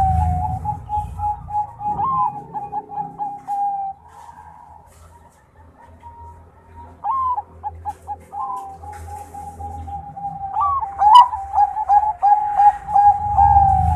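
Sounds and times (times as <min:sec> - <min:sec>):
dove cooing: 0:00.0 - 0:13.9.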